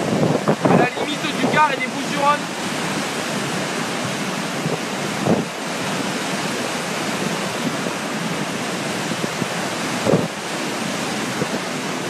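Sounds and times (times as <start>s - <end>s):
floodwater rushing and churning: 0.0s - 12.0s.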